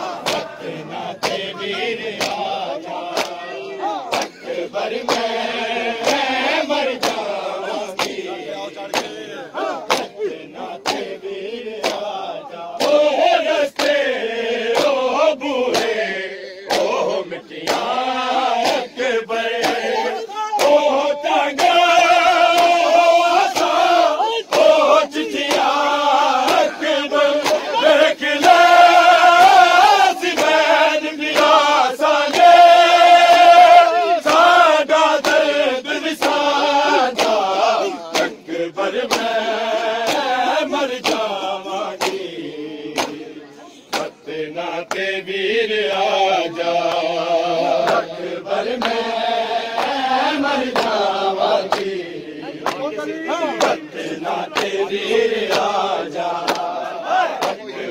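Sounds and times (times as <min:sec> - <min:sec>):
men chanting a lament: 0:00.0 - 0:57.9
chest-beating slaps: 0:00.1 - 0:05.4, 0:07.0 - 0:11.2, 0:11.8 - 0:13.1, 0:13.8 - 0:14.0, 0:14.7 - 0:15.0, 0:15.7 - 0:16.0, 0:16.6 - 0:17.9, 0:19.5 - 0:20.8, 0:26.4 - 0:26.8, 0:27.4 - 0:27.8, 0:37.2 - 0:38.4, 0:42.0 - 0:42.3, 0:42.9 - 0:45.1, 0:56.4 - 0:57.7.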